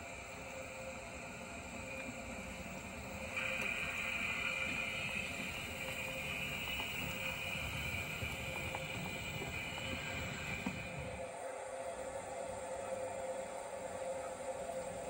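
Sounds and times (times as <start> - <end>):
model train motor whine: 0.0 - 11.2
wheels rumbling on rails: 1.1 - 11.2.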